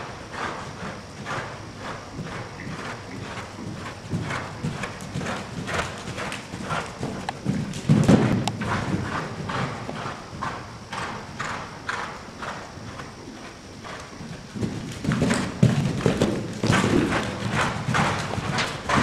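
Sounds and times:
horse hooves cantering on sand: 0.0 - 19.0
heavy hoof thud: 0.5 - 13.0, 13.9 - 19.0.

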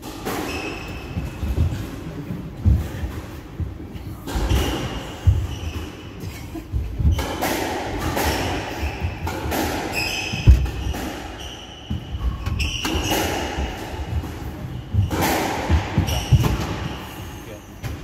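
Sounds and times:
shoes squeaking on wooden floor: 0.5 - 7.4, 8.0 - 17.2
ball thudding against walls: 7.0 - 11.3.

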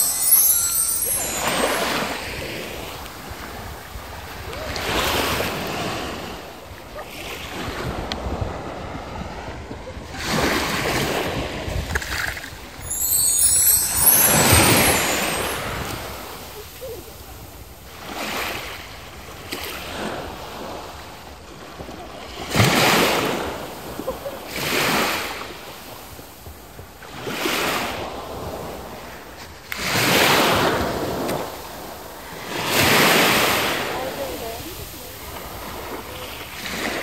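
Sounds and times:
small waves breaking on beach: 14.9 - 37.0.

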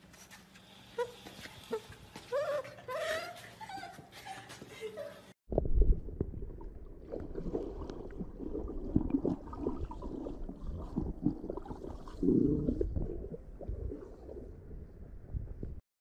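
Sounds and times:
bubbling: 5.5 - 15.8
muffled underwater rumble: 5.5 - 15.8.

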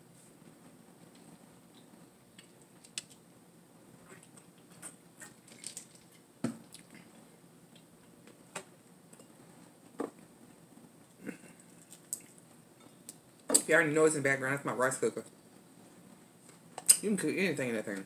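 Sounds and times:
chewing and mouth sounds: 4.0 - 7.9, 11.3 - 12.5.

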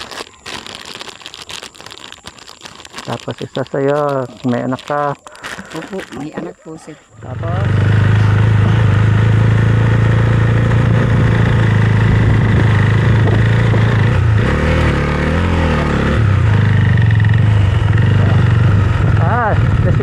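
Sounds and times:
motorcycle engine running: 7.2 - 20.0.

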